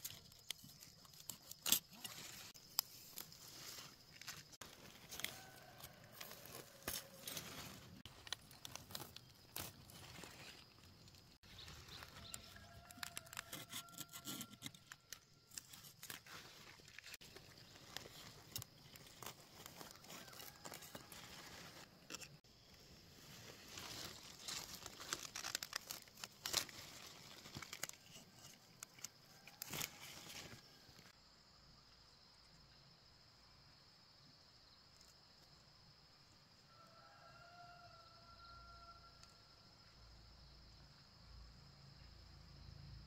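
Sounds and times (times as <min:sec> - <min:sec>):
lettuce leaves crunching: 0:00.0 - 0:14.1, 0:15.5 - 0:22.4, 0:23.4 - 0:30.6.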